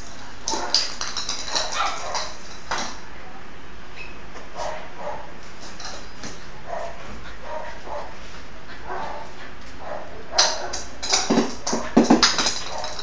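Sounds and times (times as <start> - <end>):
dog barking: 1.6 - 2.3, 4.6 - 5.3, 6.7 - 8.2, 8.8 - 10.9.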